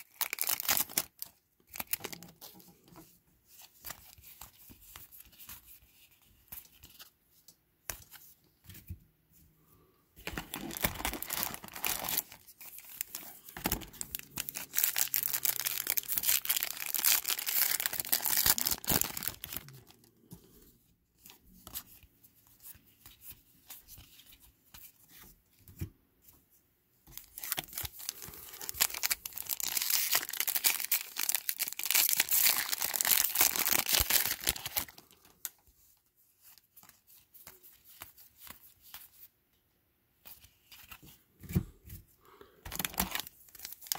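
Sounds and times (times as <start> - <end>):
card packs tearing and wrappers crinkling: 0.0 - 2.5, 10.2 - 20.0, 27.2 - 35.3, 42.7 - 43.9.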